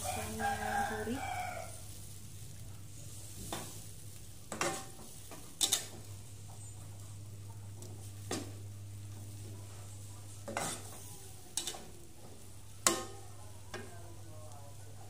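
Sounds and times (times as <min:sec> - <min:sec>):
faint sizzle: 0:00.0 - 0:15.0
metal spatula scraping a pan: 0:04.5 - 0:06.1, 0:09.7 - 0:11.9.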